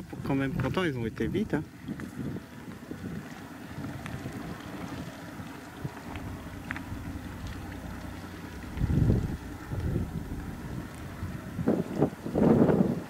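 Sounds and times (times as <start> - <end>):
wind noise on microphone: 0.0 - 13.0.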